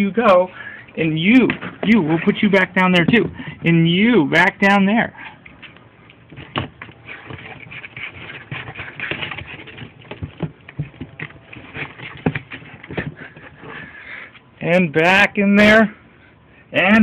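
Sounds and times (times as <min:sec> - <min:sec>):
kittens scrambling and scuffling: 0:05.5 - 0:14.0.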